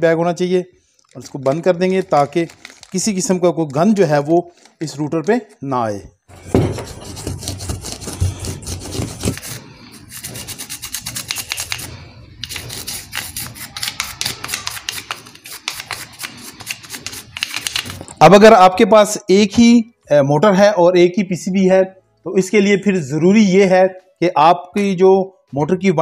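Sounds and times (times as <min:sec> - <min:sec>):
brush scrubbing plastic: 0:06.7 - 0:18.1.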